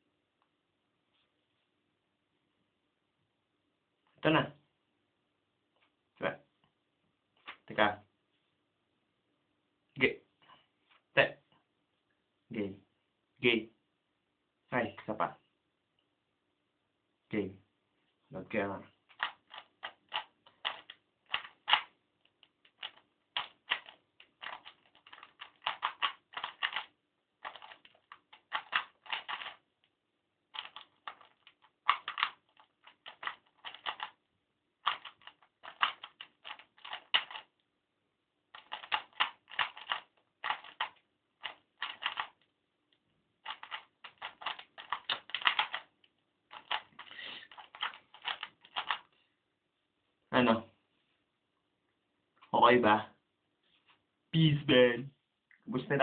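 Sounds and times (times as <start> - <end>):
puzzle cube clicking: 19.1 - 29.7, 30.5 - 34.2, 34.8 - 37.6, 38.5 - 42.5, 43.4 - 49.1.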